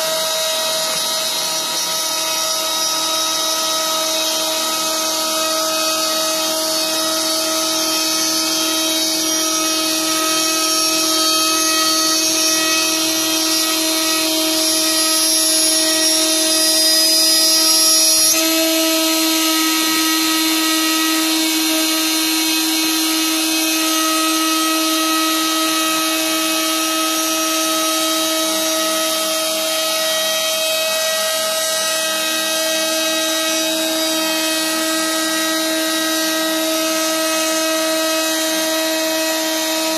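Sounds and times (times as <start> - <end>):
router spindle whining: 0.0 - 39.9.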